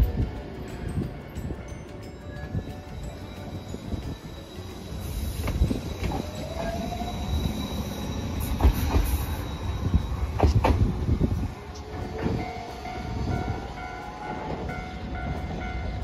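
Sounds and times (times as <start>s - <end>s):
tram rumble: 0.0s - 16.0s
faint wheel squeal: 4.8s - 10.6s.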